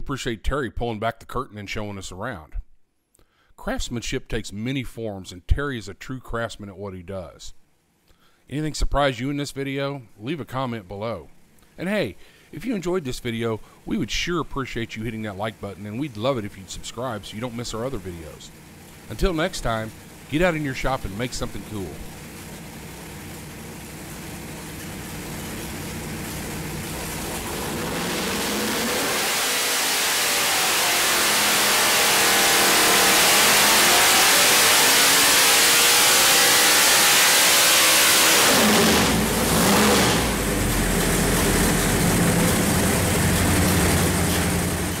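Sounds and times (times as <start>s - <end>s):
racing engine revving: 17.0s - 45.0s.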